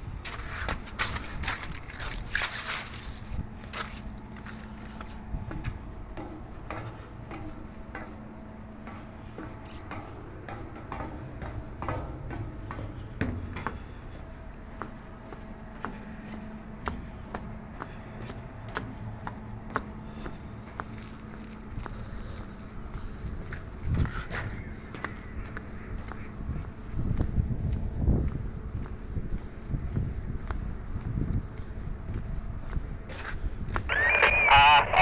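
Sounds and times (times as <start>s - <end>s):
footsteps on steel deck: 0.0s - 35.0s
low machinery hum: 0.0s - 35.0s.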